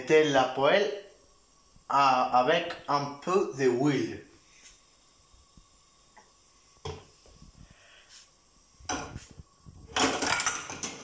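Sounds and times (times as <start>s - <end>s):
pan clattering against stove: 9.9s - 11.0s
frying pan knocking: 10.0s - 11.0s.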